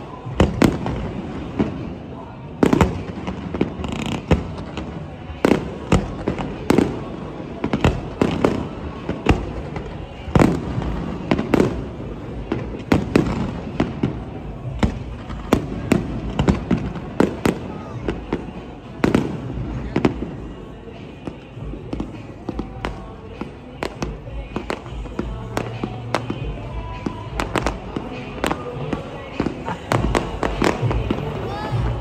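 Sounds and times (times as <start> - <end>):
fireworks bursting with sharp bangs: 0.0 - 32.0.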